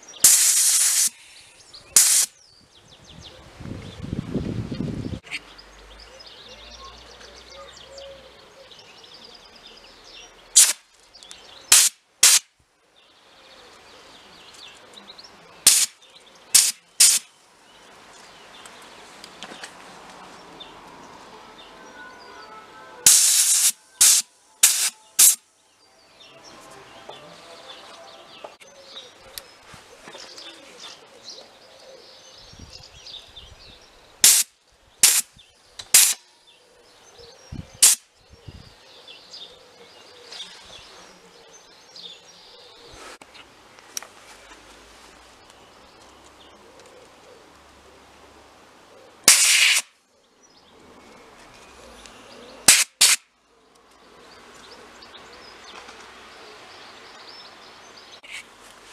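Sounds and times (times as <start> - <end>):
faint birds chirping: 0.0 - 49.3, 50.0 - 58.9
compressed air blasts: 0.2 - 1.2, 2.0 - 2.3, 10.6 - 10.8, 11.7 - 12.5, 15.6 - 17.3, 23.1 - 25.4, 34.2 - 36.2, 37.8 - 38.1, 49.3 - 49.9, 52.6 - 53.3.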